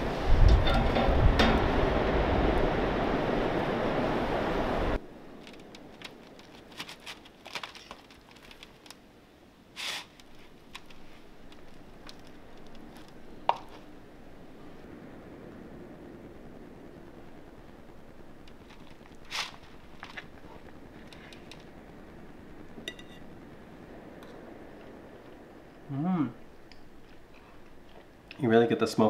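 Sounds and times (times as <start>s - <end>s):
wind buffeting microphone: 0.0s - 7.4s, 10.2s - 28.5s
ocean surf: 0.0s - 28.3s.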